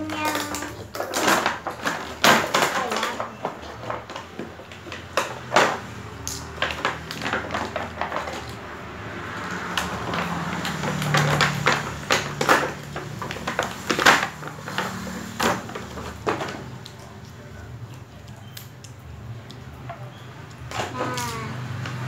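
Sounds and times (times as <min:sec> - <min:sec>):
plastic toy pieces clicking: 0:00.0 - 0:05.5.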